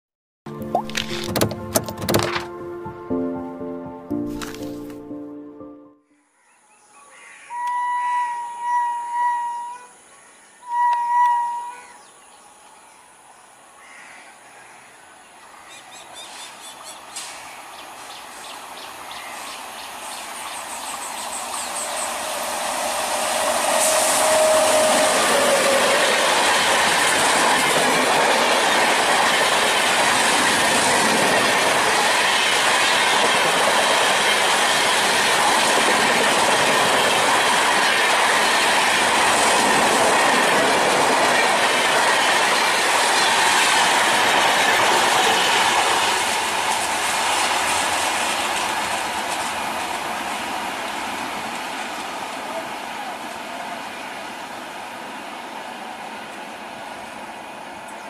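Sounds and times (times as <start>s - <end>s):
train rushing past: 16.3s - 58.0s
coach wheels rattling on rails: 20.4s - 53.4s.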